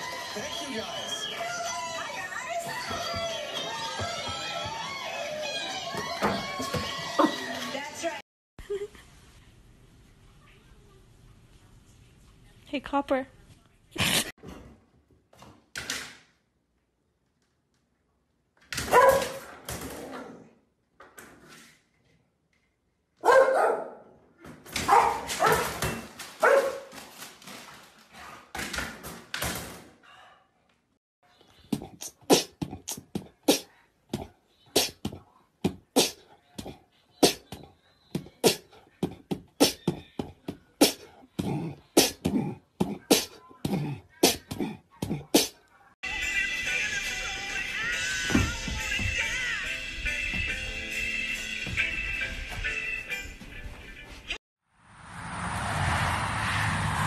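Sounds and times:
dog barking and whining: 18.8 - 19.4, 23.2 - 24.0, 24.8 - 25.8.

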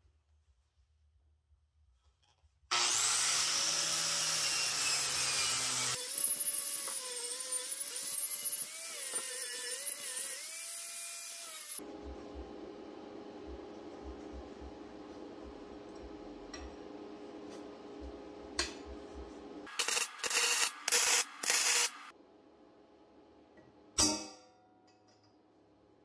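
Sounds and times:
angle grinder grinding steel: 2.7 - 11.8, 19.7 - 22.1
angle grinder wire-brushing steel: 2.7 - 11.8, 19.7 - 22.1.

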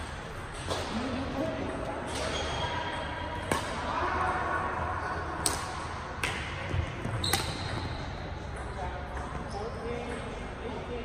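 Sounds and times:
rackets hitting shuttlecock: 0.0 - 4.3, 5.3 - 9.4.

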